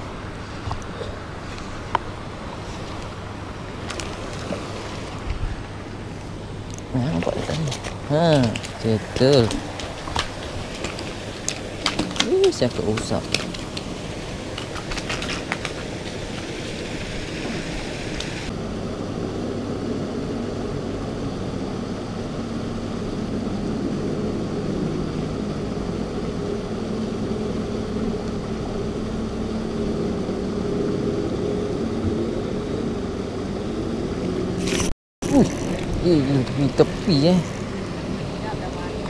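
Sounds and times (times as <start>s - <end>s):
mechanical drone with low hum: 0.0s - 39.0s
higher hiss: 15.8s - 18.5s.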